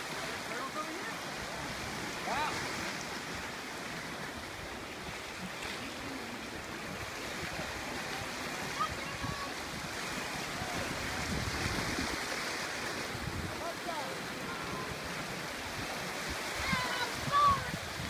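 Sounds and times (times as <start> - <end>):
surf washing over rocks: 0.0 - 18.0
faint distant voices: 5.5 - 16.0.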